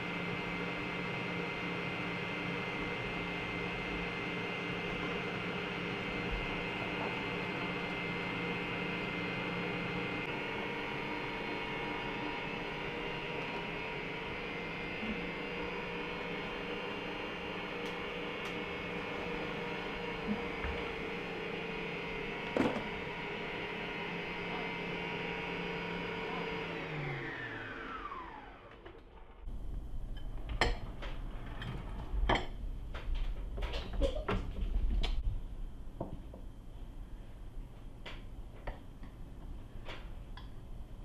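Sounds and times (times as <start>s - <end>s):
electric stand mixer whine: 0.0s - 30.8s.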